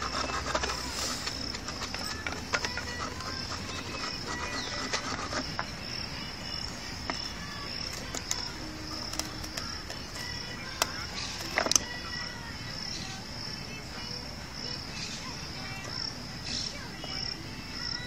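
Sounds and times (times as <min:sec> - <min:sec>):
insect chirping: 0:00.0 - 0:18.0.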